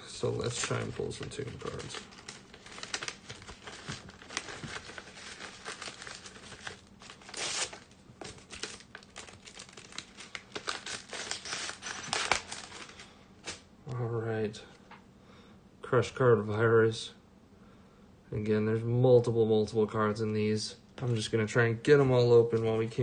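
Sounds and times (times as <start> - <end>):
cards and wrapping rustling: 0.1 - 13.7
packaging crinkling and tearing: 0.3 - 13.7.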